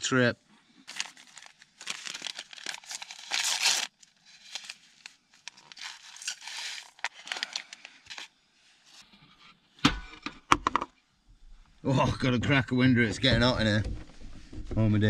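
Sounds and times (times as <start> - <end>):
crinkling and rustling: 0.7 - 9.1.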